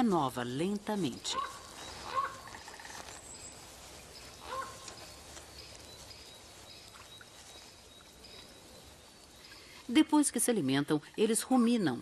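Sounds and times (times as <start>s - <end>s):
low steady hiss: 0.0s - 12.0s.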